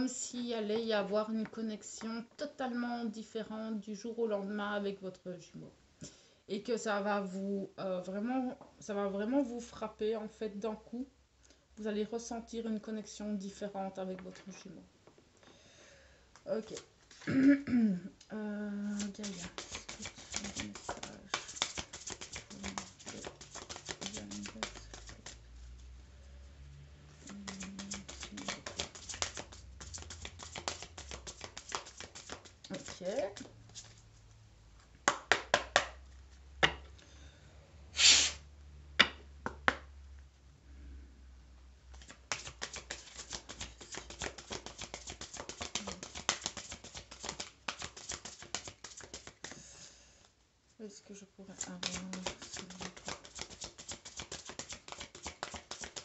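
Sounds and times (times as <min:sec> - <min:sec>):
cards being shuffled: 0:18.8 - 0:25.5, 0:27.2 - 0:34.1, 0:41.9 - 0:49.6, 0:51.6 - 0:56.0.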